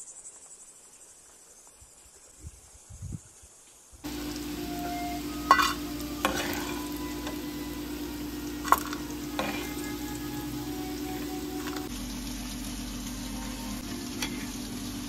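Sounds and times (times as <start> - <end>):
food sizzling in a pot: 4.0 - 15.0
steady low hum: 4.0 - 15.0.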